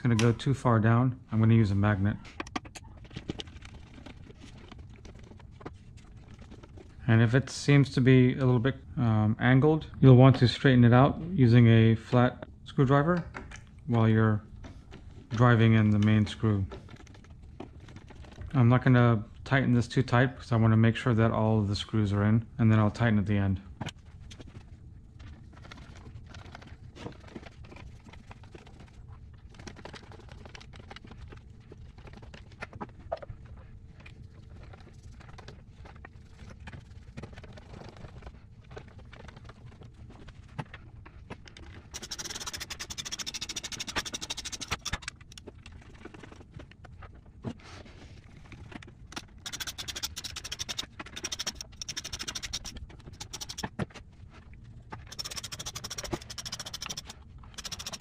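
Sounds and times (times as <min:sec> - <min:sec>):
ratcheting screwdriver chatter: 0:41.9 - 0:45.4, 0:49.4 - 0:53.7, 0:55.0 - 0:58.0.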